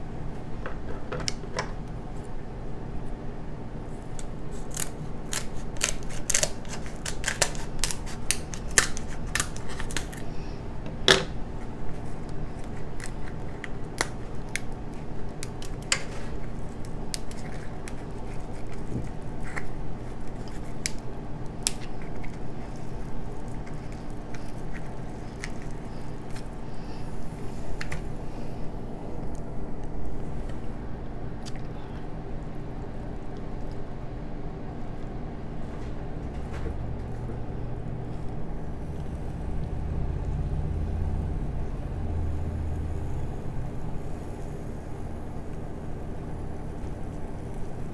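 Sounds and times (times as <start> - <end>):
steady low hum: 0.0 - 47.9
crab shell cracking: 4.0 - 10.3, 11.9 - 26.6
kitchen shears snipping shell: 4.2 - 10.2.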